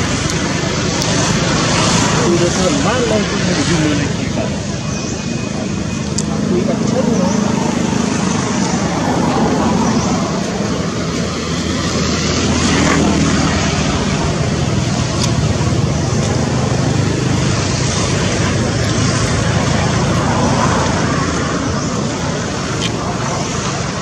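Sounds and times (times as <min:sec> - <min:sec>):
constant hiss: 0:00.0 - 0:08.8
vehicle engine humming: 0:00.0 - 0:24.0.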